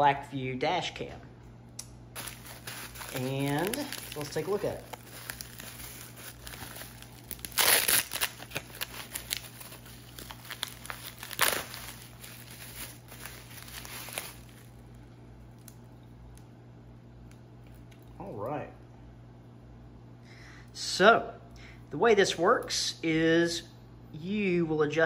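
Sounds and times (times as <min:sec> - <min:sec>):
bubble wrap crinkling: 0:02.2 - 0:16.4.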